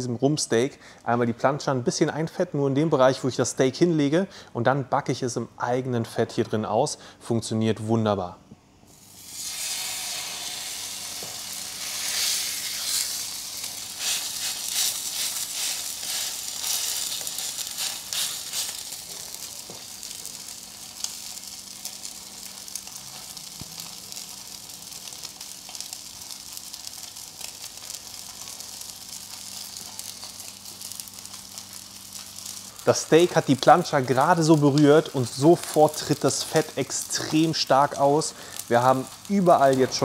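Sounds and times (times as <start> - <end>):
steak sizzling on a hot plate: 8.9 - 40.0
fat crackling and popping: 10.1 - 40.0.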